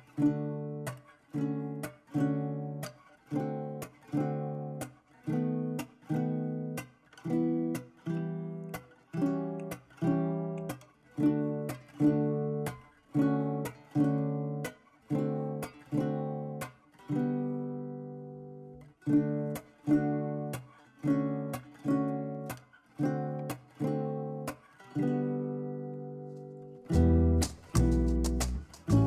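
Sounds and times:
strummed acoustic guitar chords: 19.3s - 29.0s.

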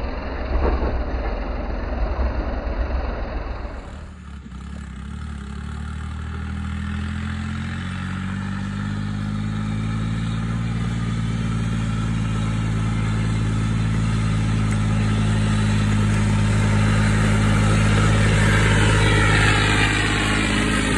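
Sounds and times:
tractor diesel engine running: 0.0s - 20.9s.

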